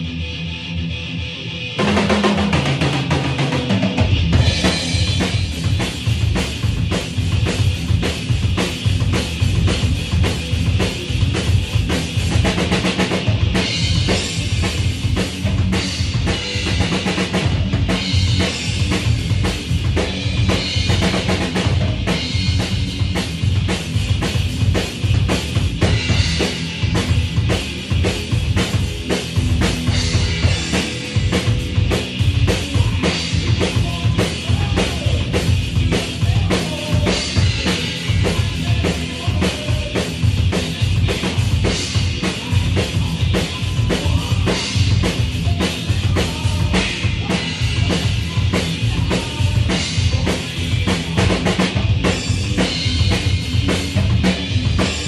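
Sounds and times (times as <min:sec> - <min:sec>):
bass drum and snare hits: 0:04.3 - 0:09.2, 0:20.1 - 0:27.5.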